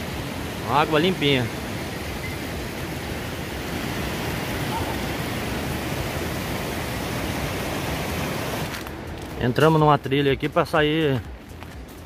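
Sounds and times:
waterfall rushing: 0.0s - 8.8s.

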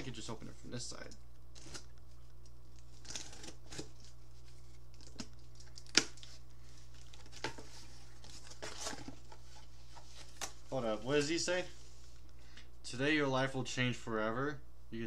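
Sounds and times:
cardboard package rustling: 1.4s - 11.7s.

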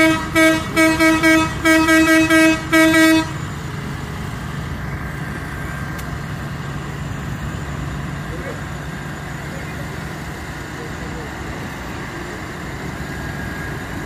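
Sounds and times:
vehicle horn short toots: 0.0s - 3.4s
heavy diesel engines running: 0.0s - 14.0s.

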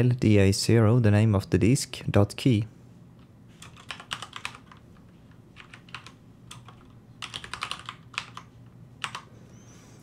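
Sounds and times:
computer keyboard typing: 3.6s - 4.8s, 5.6s - 9.3s.

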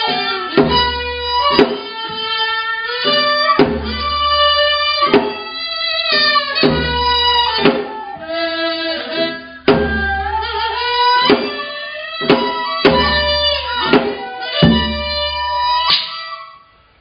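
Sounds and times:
traditional ensemble melody: 0.0s - 16.7s
drum strokes with low thud: 0.6s - 2.3s, 3.0s - 5.4s, 6.1s - 8.0s, 9.6s - 10.6s, 12.2s - 15.7s.

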